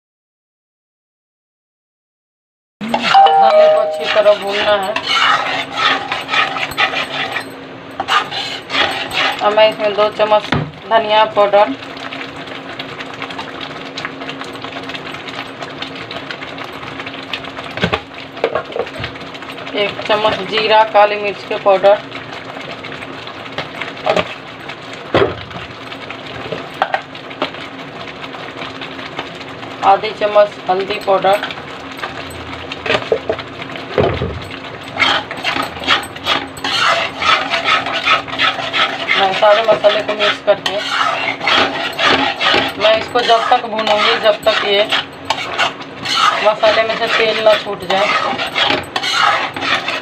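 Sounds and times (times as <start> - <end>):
paste crackling and sputtering frying: 2.9 - 50.0
metal spatula scraping paste: 4.0 - 7.4, 8.0 - 9.9, 35.0 - 50.0.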